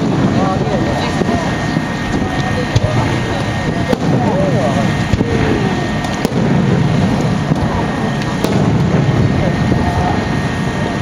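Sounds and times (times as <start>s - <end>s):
firework shells bursting: 0.0s - 11.0s
voices murmuring: 0.0s - 11.0s.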